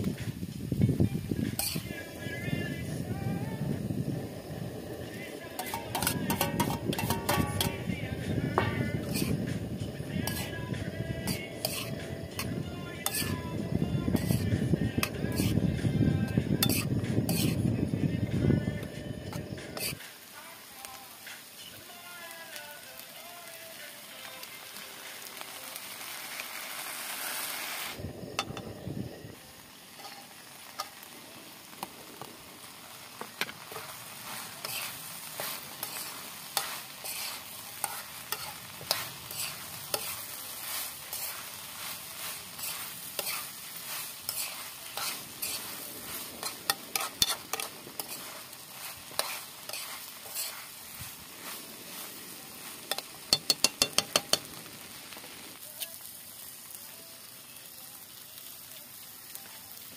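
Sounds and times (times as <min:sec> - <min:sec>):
food sizzling in a wok: 0:00.0 - 0:59.9
metal spoon scraping a wok: 0:01.4 - 0:03.3, 0:04.2 - 0:20.1, 0:28.2 - 0:28.8, 0:29.9 - 0:31.1, 0:33.4 - 0:54.5
spoon tapping on a wok: 0:05.6 - 0:07.9, 0:08.6 - 0:09.3, 0:28.4 - 0:28.7, 0:52.9 - 0:54.5.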